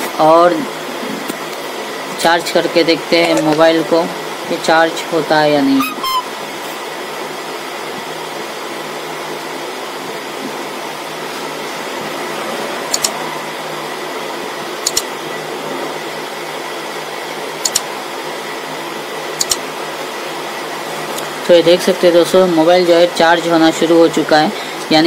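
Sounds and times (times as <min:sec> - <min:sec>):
fan-like room noise with hum: 0:00.0 - 0:25.0
computer mouse double clicks: 0:12.9 - 0:13.2, 0:14.8 - 0:15.1, 0:17.6 - 0:17.8.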